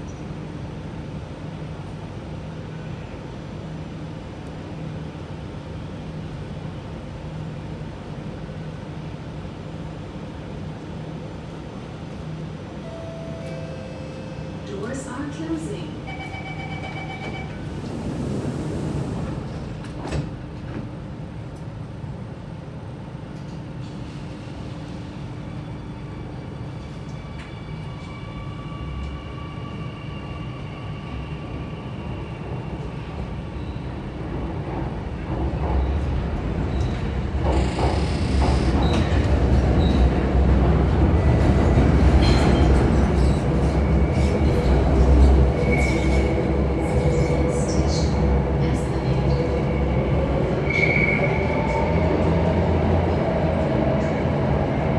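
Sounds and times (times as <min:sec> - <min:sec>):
train doors sliding shut: 0:16.8 - 0:21.0, 0:34.6 - 0:40.2.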